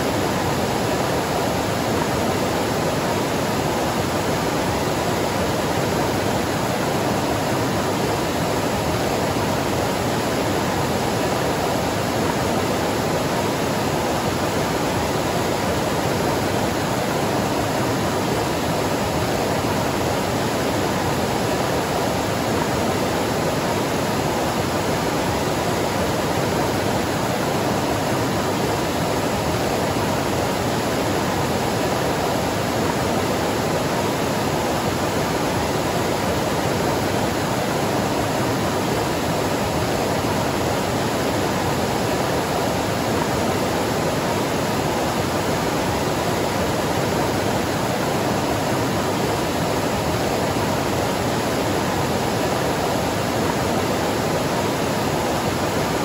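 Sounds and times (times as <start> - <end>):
waterfall rushing: 0.0 - 56.0.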